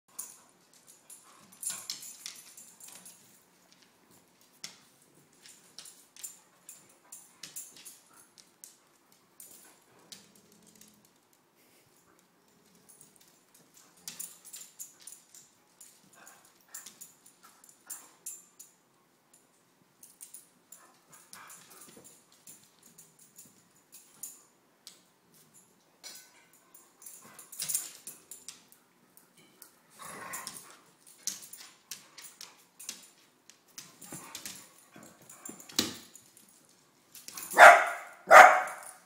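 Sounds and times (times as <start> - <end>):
dogs scuffling: 29.9 - 39.0.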